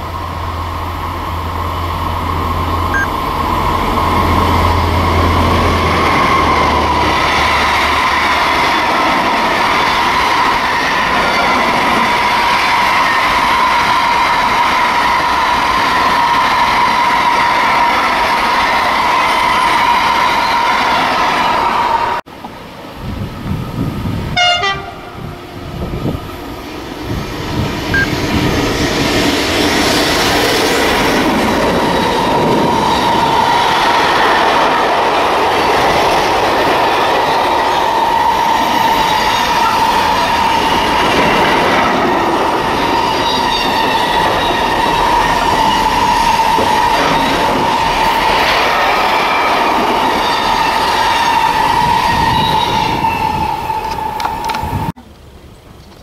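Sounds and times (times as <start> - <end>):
freight train rolling past: 0.0 - 56.0
high wheel squeal: 4.1 - 22.0, 37.4 - 41.7, 42.4 - 54.9.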